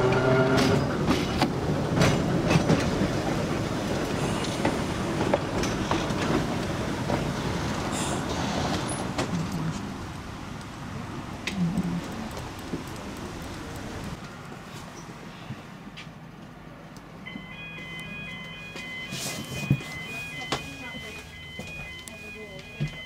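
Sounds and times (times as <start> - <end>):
rail clicks and clatter: 0.0 - 14.4
tram wheel rumble: 0.0 - 23.0.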